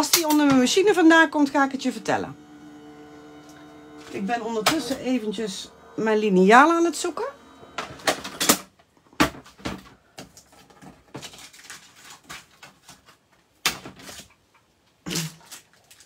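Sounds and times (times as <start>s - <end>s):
rustling and knocking of craft supplies: 7.8s - 14.8s.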